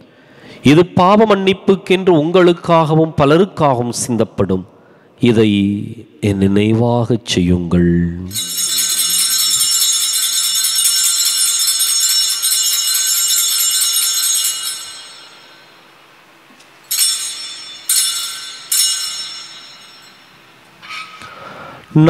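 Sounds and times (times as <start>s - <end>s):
altar bells ringing: 8.3s - 21.9s.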